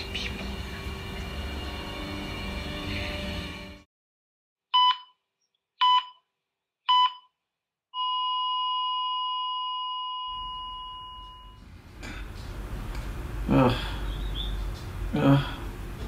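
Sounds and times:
heart monitor beeps: 4.8 - 5.2, 5.8 - 6.3, 6.9 - 7.4, 8.0 - 11.6
heart monitor flatline tone: 8.0 - 11.6.

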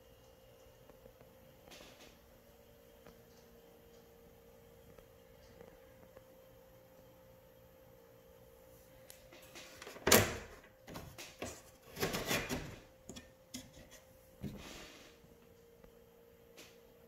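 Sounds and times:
sliding door scraping: 11.4 - 12.9.

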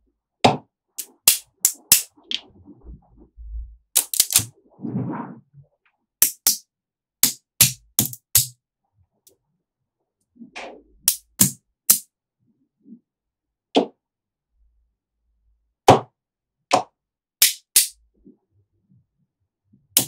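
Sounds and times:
magnetic balls snapping together: 1.0 - 2.4, 4.0 - 4.5, 6.2 - 6.6, 7.2 - 8.6, 11.0 - 12.0, 16.7 - 17.9.

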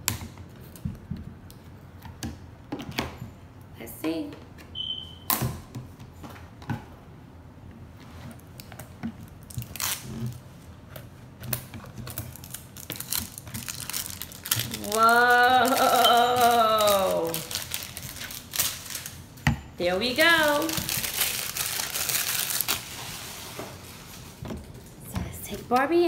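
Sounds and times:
toy packaging crinkling and tearing: 9.4 - 10.4, 12.0 - 19.3, 20.2 - 23.0.

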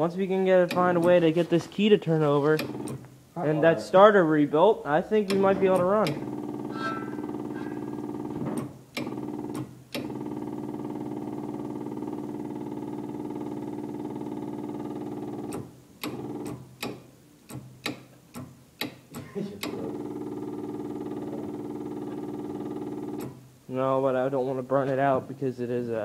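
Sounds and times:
electric fuel pump humming: 2.6 - 3.1, 5.2 - 17.0, 19.6 - 23.4.

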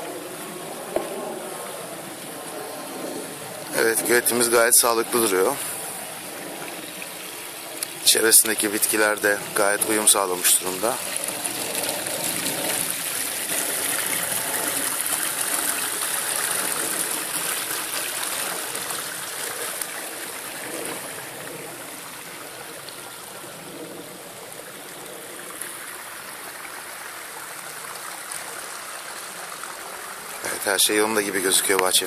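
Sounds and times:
pond waterfall splashing: 0.0 - 32.0.

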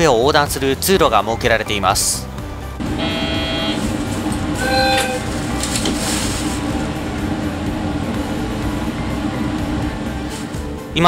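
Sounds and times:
diesel railcar engine idling: 2.8 - 10.9
short electronic tone: 2.9 - 3.9, 4.6 - 5.3.

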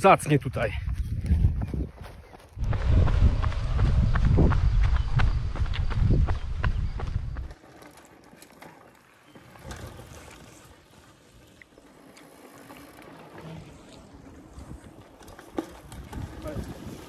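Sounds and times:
wind buffeting microphone: 0.4 - 7.6, 15.8 - 17.0.

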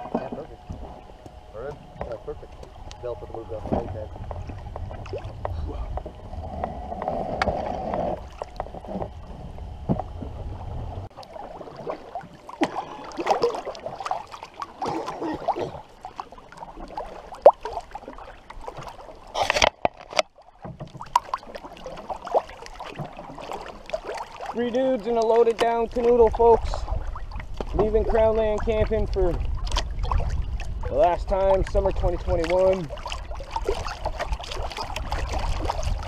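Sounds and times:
low rumble: 0.0 - 11.8
paddles dipping through water: 0.0 - 36.0
water swishing along hull: 0.0 - 36.0.

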